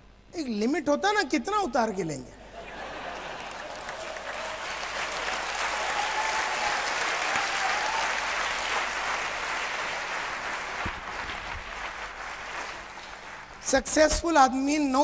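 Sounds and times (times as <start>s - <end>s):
large audience applauding: 2.8s - 13.6s.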